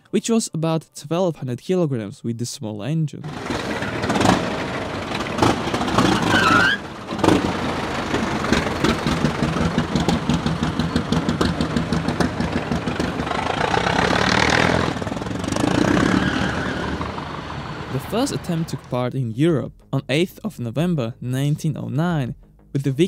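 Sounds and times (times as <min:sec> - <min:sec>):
old car engine pulsing: 0:03.3 - 0:19.0.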